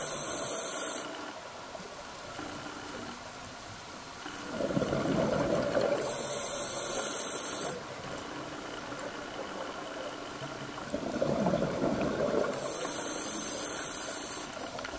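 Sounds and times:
regulator hissing: 0:00.0 - 0:01.1, 0:06.0 - 0:07.8, 0:12.6 - 0:14.6
exhaled bubbles rushing underwater: 0:04.5 - 0:06.4, 0:10.6 - 0:12.8.

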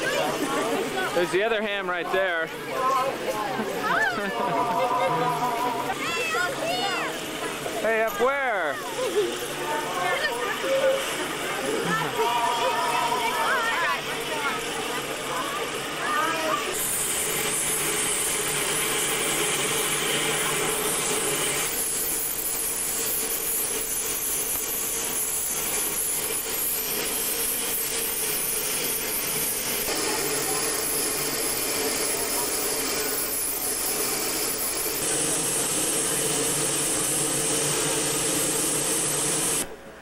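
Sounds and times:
steam locomotive venting steam: 0:04.4 - 0:39.8.

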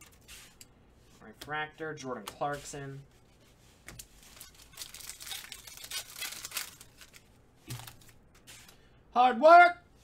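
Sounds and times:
cards being handled: 0:02.2 - 0:08.8
card pack wrapper crinkling: 0:03.9 - 0:08.2.

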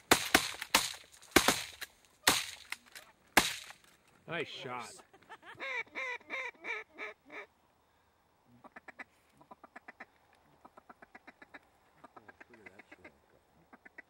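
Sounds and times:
duck quacks: 0:08.6 - 0:14.0.

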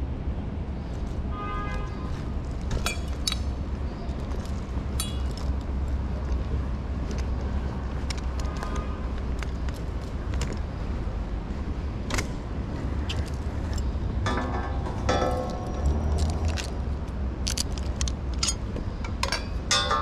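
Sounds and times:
street traffic rumble: 0:00.0 - 0:20.0
metallic clinks and jingles: 0:17.4 - 0:20.0.

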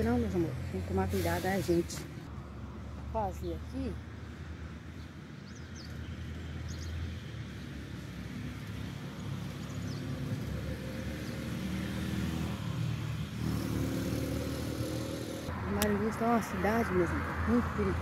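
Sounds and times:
vehicle engine passing: 0:08.1 - 0:18.0.

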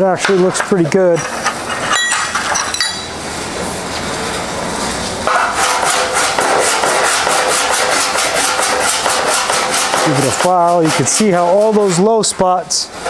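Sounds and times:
sheet metal ringing: 0:01.8 - 0:03.2
hand file rasping on steel: 0:05.3 - 0:12.0.

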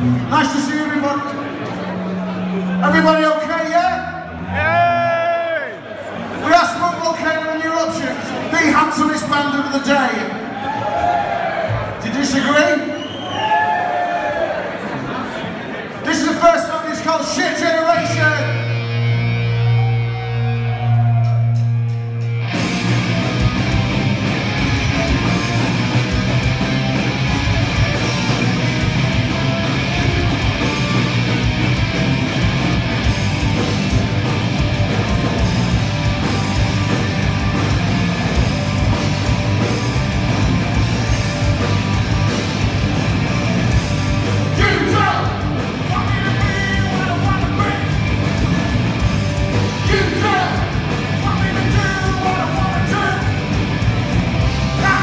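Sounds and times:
punk rock band playing: 0:17.6 - 0:55.0.

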